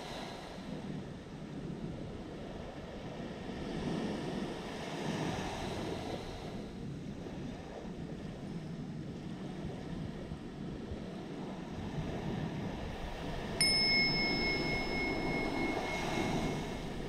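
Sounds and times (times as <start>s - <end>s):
wind buffeting microphone: 0.1s - 17.0s
ocean surf washing onto beach: 9.3s - 17.0s.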